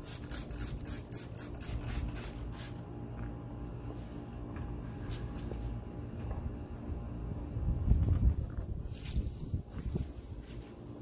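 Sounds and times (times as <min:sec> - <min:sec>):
spray bottle squirting: 0:00.0 - 0:02.8.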